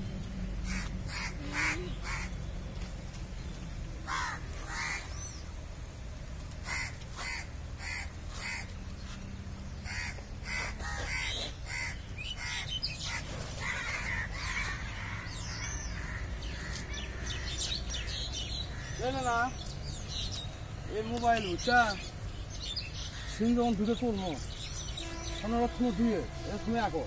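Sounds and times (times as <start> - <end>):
crows cawing: 0.6 - 2.4, 4.0 - 5.2, 6.6 - 8.7, 9.8 - 19.5, 23.0 - 24.0.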